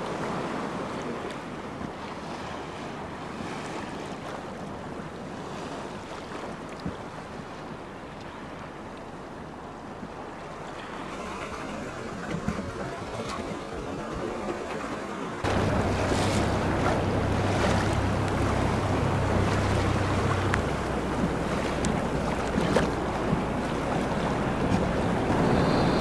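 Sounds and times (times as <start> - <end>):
rushing sea water: 0.0 - 26.0
water splashes: 0.0 - 26.0
outboard motor running: 11.2 - 26.0
wind buffeting microphone: 15.4 - 26.0.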